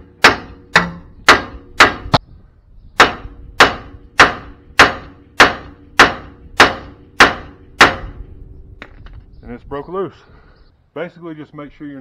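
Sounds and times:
hammer striking metal: 0.0s - 2.2s, 3.0s - 8.2s.

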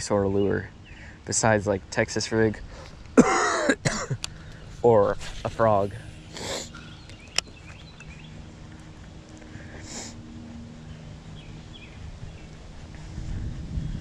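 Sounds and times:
distant bird chirps: 5.7s - 13.0s.

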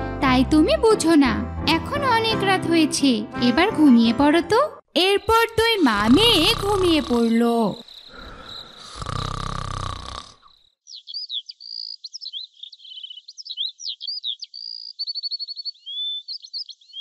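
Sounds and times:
low snoring rasp: 6.0s - 7.4s, 8.0s - 10.6s
songbirds chirping: 10.7s - 17.0s.

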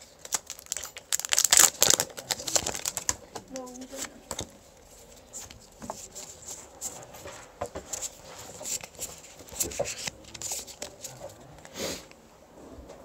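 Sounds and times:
cards clicking and rustling: 7.2s - 11.8s.

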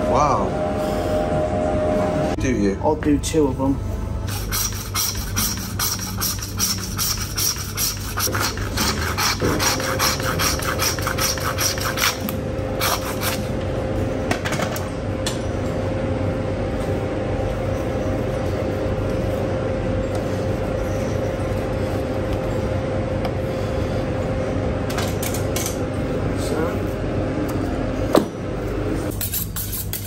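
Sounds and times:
hand saw rasping through bone: 4.3s - 12.2s.

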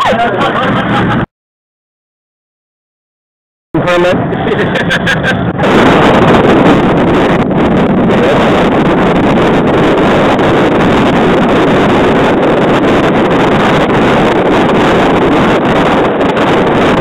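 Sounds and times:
boat on choppy water: 0.0s - 1.3s, 3.8s - 17.0s
wind buffeting microphone: 3.8s - 17.0s.

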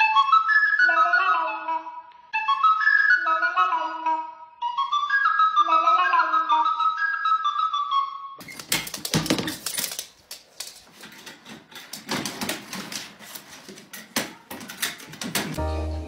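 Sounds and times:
dog scrambling in plastic carrier: 8.4s - 15.6s.

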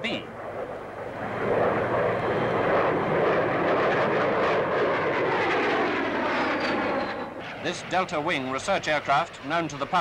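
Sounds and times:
jet aircraft flying past: 0.0s - 10.0s.

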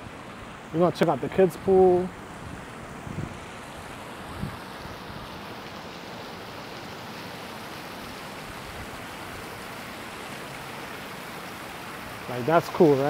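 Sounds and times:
spray fountain splashing into pool: 3.2s - 13.0s.

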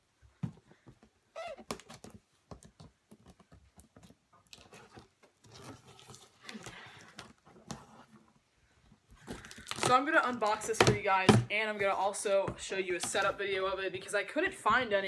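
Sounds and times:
hands tapping and rustling cardboard: 0.3s - 8.2s.

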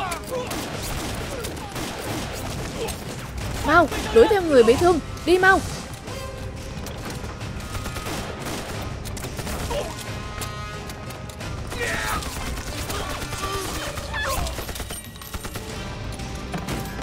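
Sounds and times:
dramatic music score: 0.0s - 17.0s
rifle gunshots: 0.4s - 4.9s, 7.0s - 10.0s, 11.6s - 15.9s.

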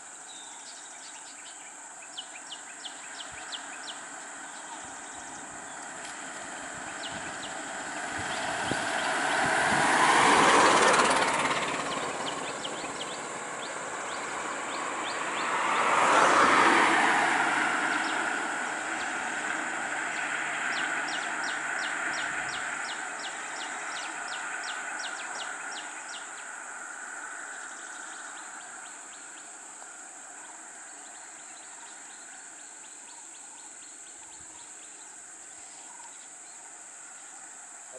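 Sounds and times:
vehicles passing on road: 0.0s - 37.9s
car driving off: 2.9s - 32.8s.

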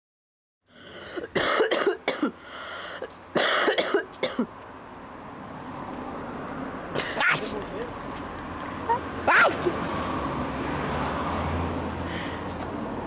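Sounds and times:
person coughing: 1.2s - 2.4s, 3.4s - 4.5s, 7.0s - 7.5s.

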